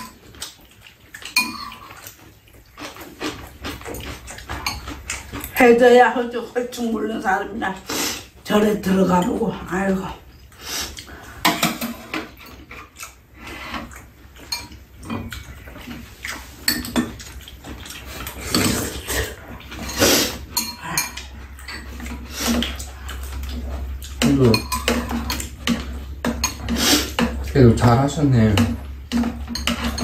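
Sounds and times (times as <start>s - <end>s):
utensils clinking on ceramic bowls: 1.2s - 2.1s, 3.6s - 5.8s, 14.4s - 16.0s, 16.6s - 19.1s, 19.7s - 30.0s.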